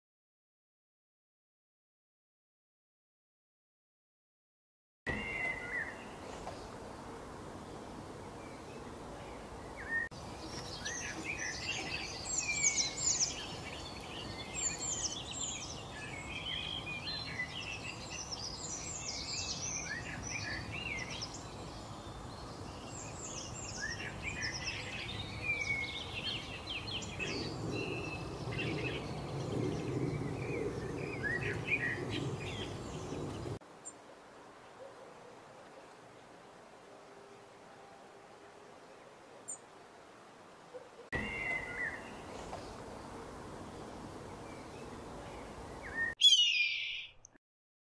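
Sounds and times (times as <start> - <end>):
songbirds chirping and whistling: 5.1 - 6.8, 7.8 - 34.0, 41.2 - 43.1, 43.8 - 47.3.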